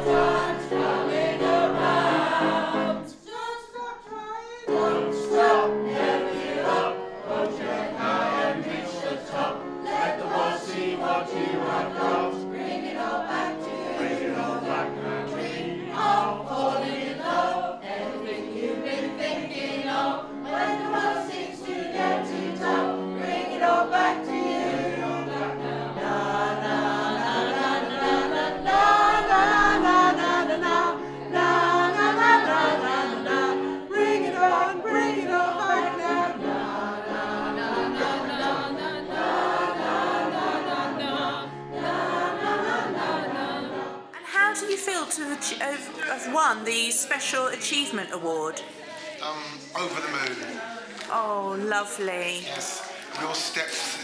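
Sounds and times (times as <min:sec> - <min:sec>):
choir of men and women singing: 0:00.0 - 0:54.0.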